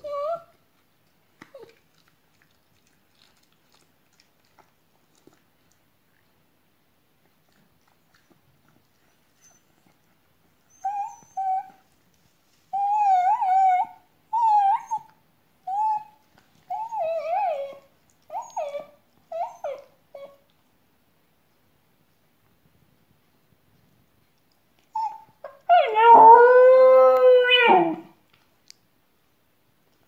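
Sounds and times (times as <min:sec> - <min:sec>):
small dog whining and crying: 0:00.0 - 0:00.5, 0:10.7 - 0:11.8, 0:12.7 - 0:15.1, 0:15.7 - 0:20.4, 0:24.9 - 0:28.1.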